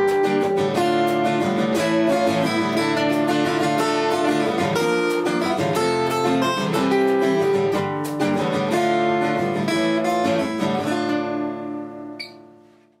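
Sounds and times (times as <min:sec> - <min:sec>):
acoustic guitar fingerstyle: 0:00.0 - 0:13.0
small click: 0:12.2 - 0:12.4.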